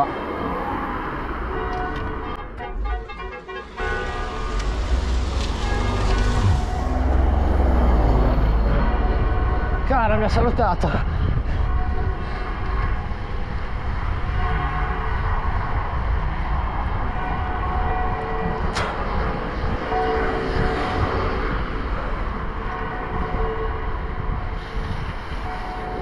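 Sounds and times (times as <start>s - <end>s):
tyres hissing on wet asphalt: 3.7s - 8.0s
wind buffeting microphone: 3.8s - 26.0s.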